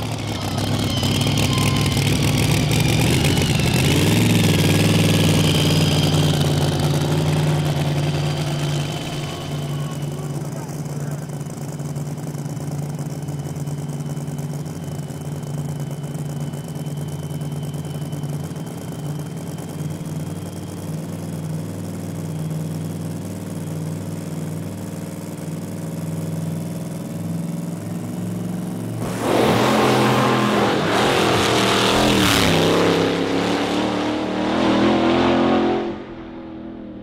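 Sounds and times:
faint high whine: 0.0s - 24.1s
dragster engine idling: 0.0s - 29.0s.

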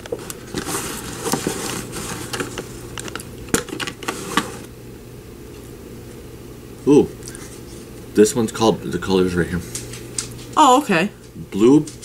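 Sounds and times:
paper rustling: 0.0s - 4.7s.

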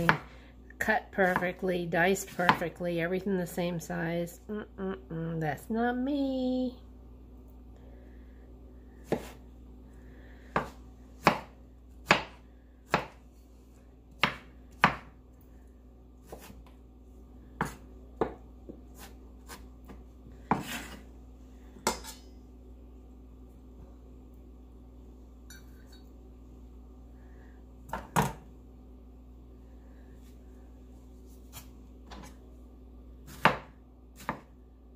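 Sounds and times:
knife chopping on wooden board: 9.1s - 9.4s, 10.5s - 13.2s, 14.1s - 15.1s, 16.2s - 16.7s, 17.6s - 21.0s, 33.3s - 34.5s.

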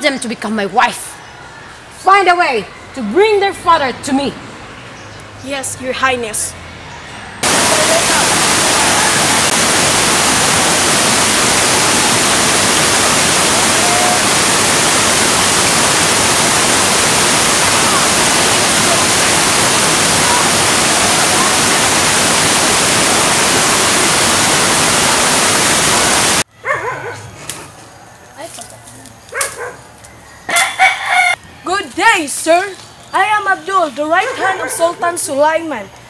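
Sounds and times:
water rushing over boulders: 7.4s - 26.5s.

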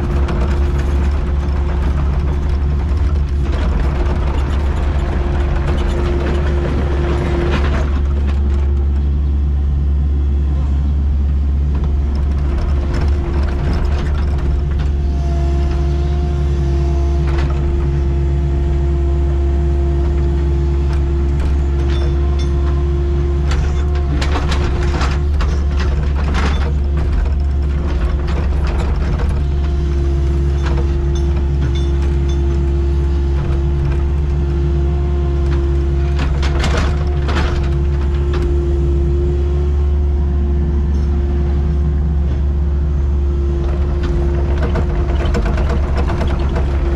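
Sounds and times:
machine clanks and knocks: 0.0s - 9.2s, 11.7s - 15.0s, 20.8s - 34.5s, 35.4s - 38.8s, 43.6s - 46.9s
excavator diesel engine droning: 0.0s - 46.9s.

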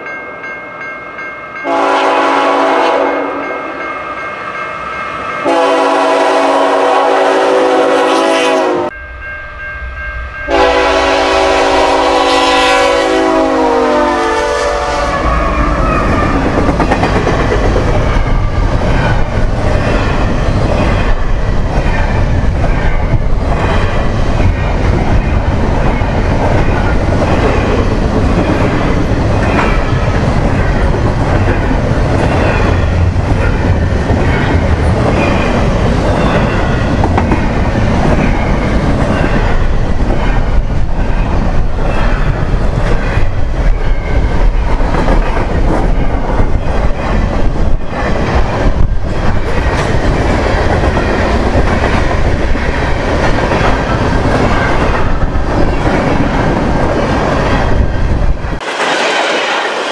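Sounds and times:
locomotive horn blasts: 1.6s - 3.6s, 5.4s - 9.0s, 10.5s - 15.5s.

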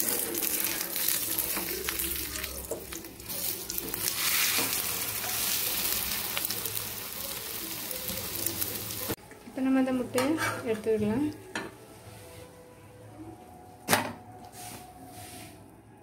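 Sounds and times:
omelette sizzling in hot oil: 0.0s - 9.2s.

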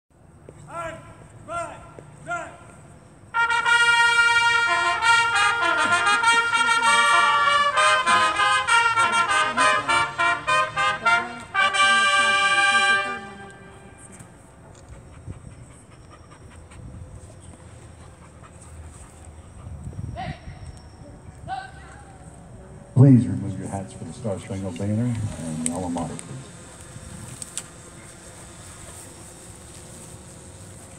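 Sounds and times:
faint outdoor background noise: 0.1s - 30.9s
marching band brass playing: 3.3s - 14.2s.

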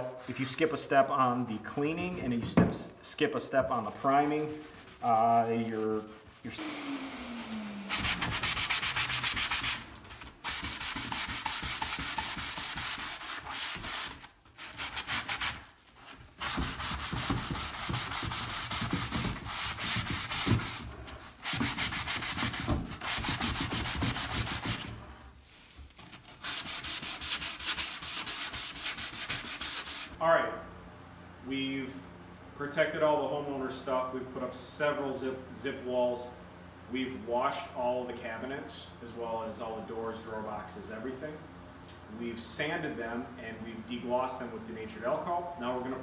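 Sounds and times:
hand sanding wood: 0.0s - 2.8s, 3.4s - 30.2s.

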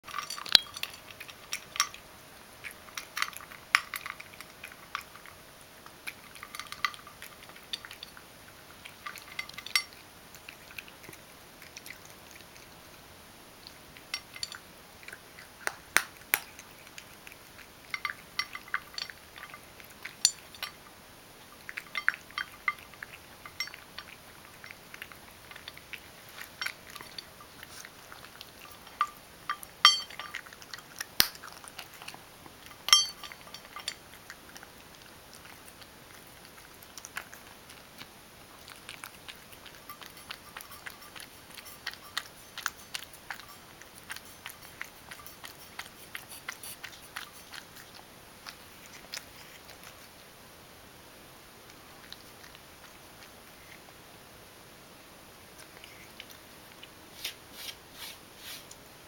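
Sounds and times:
kibble clinking on metal bowl: 0.0s - 2.0s, 2.6s - 5.3s, 6.1s - 8.2s, 8.8s - 10.0s, 14.0s - 14.6s, 17.6s - 20.9s, 21.5s - 34.6s, 38.6s - 47.6s
cat crunching dry kibble: 0.1s - 12.8s, 13.6s - 50.2s.

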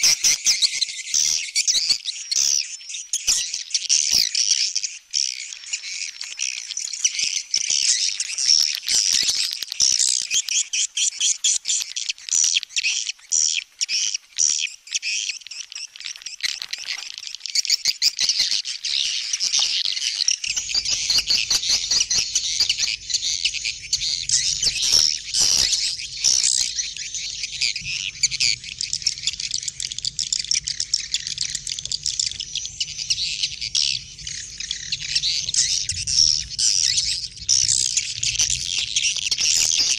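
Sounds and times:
small birds twittering: 0.0s - 39.9s
low steady hum: 20.5s - 39.6s.

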